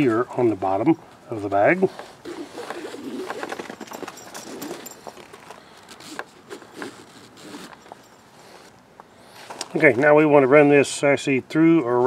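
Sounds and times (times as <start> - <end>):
nylon strap rustling: 2.2 - 9.8.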